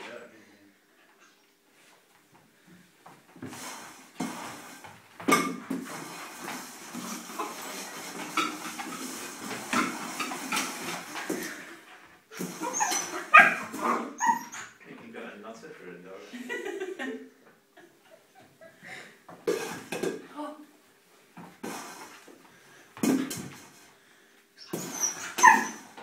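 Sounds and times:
plastic bowl clattering on tiled floor: 4.2s - 11.7s, 19.4s - 20.3s, 23.0s - 23.9s
puppy whimpering: 12.4s - 14.8s, 24.6s - 26.0s
puppy barking and yipping: 12.6s - 14.7s, 24.6s - 26.0s.

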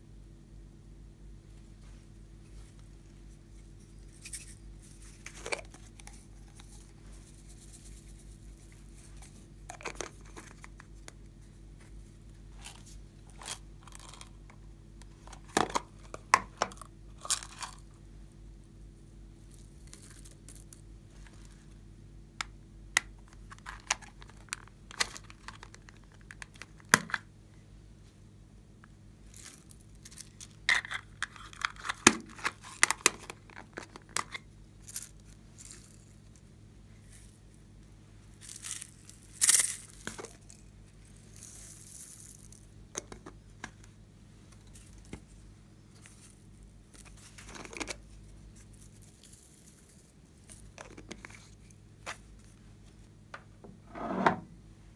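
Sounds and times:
faint low hum: 0.0s - 54.9s
crinkling rustles: 1.8s - 17.9s, 23.3s - 26.9s, 43.8s - 53.1s.

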